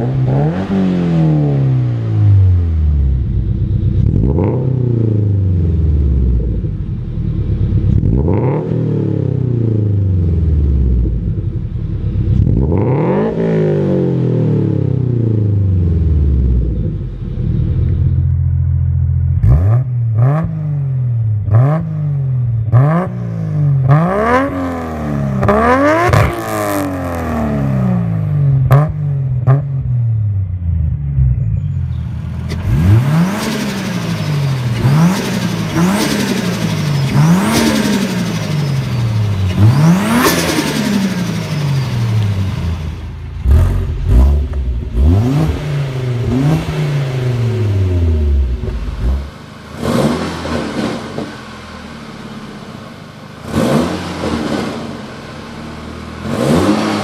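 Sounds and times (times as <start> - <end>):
engine revving: 0.0 - 57.0.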